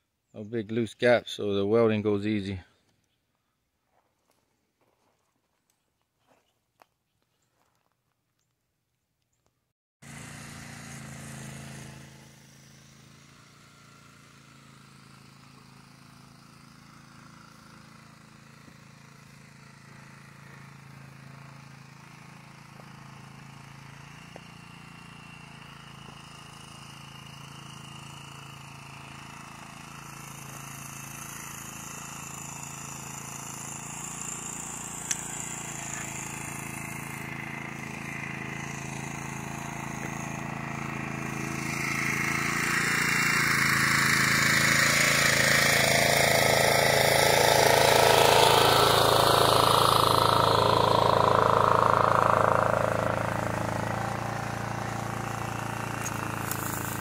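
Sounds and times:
engine hum: 10.0s - 57.0s
arc welding crackling hiss: 55.9s - 57.0s.

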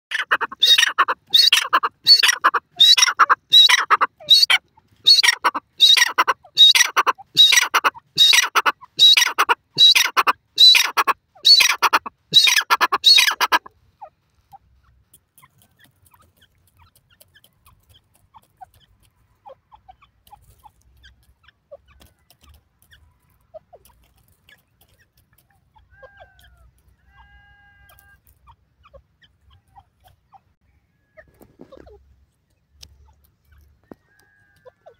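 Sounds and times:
francolin shrill calls: 0.6s - 13.6s.

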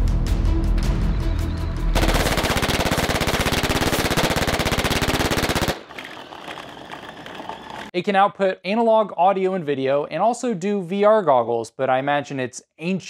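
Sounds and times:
dramatic music with heavy bass: 0.0s - 2.2s
rapid machine-gun fire: 2.0s - 6.3s.

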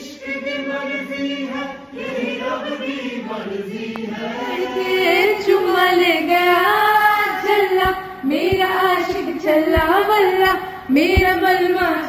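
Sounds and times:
woman singing unaccompanied: 4.4s - 12.0s.

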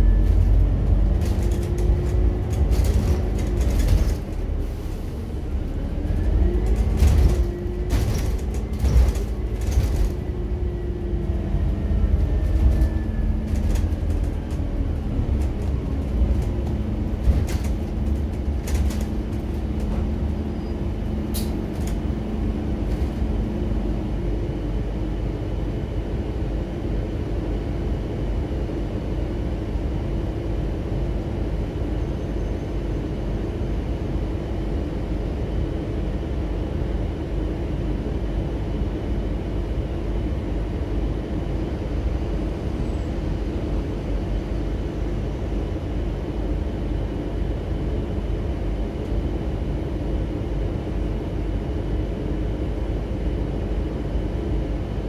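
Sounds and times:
bus engine droning: 0.0s - 55.0s
knocks and rattles: 12.5s - 20.4s.

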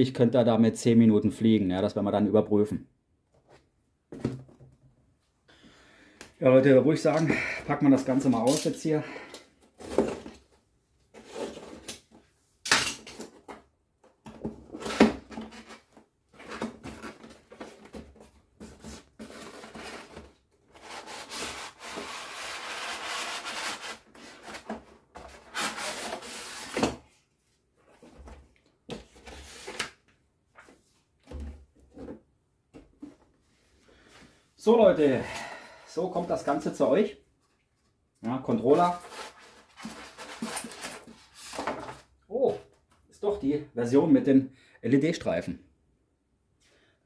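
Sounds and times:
cardboard rubbing and scraping: 18.6s - 27.0s.

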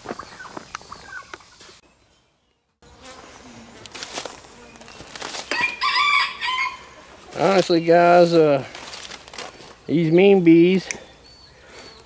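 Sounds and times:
chickens clucking: 0.0s - 1.8s, 6.5s - 8.2s
honey bees buzzing: 2.6s - 12.0s
rooster crowing: 5.5s - 7.1s.

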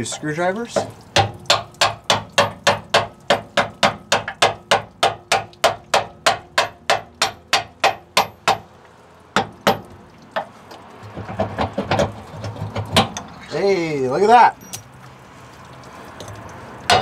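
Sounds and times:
hammer striking a screwdriver: 1.2s - 8.6s.

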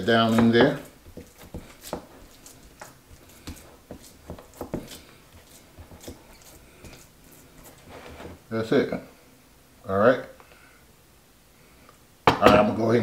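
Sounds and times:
squishing and patting meat by hand: 0.0s - 8.6s.

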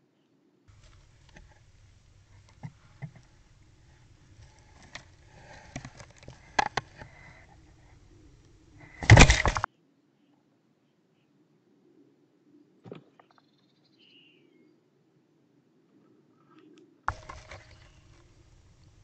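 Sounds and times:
scraping and knocking: 0.7s - 8.0s, 8.8s - 9.7s, 17.1s - 19.0s
steady low hum: 0.7s - 9.7s.

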